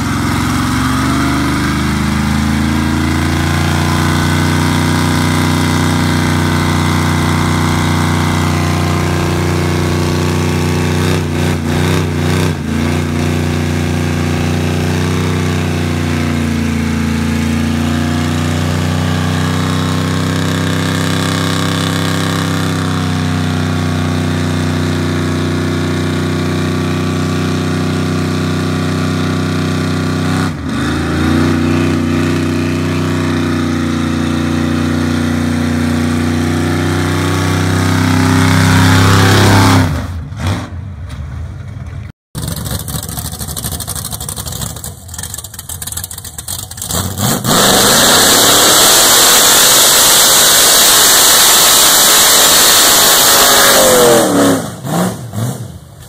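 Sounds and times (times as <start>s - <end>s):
truck engine at high revs: 0.0s - 56.0s.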